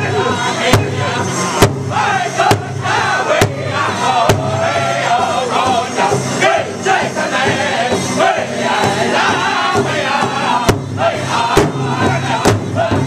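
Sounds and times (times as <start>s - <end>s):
male voices chanting: 0.0s - 13.0s
unison drumbeats: 0.0s - 13.0s.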